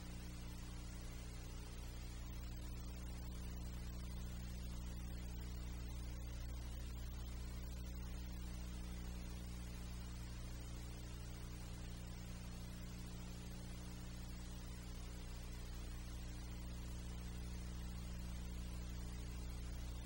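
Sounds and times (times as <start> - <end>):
faint hiss: 0.0 - 20.0
low electrical hum: 0.0 - 20.0.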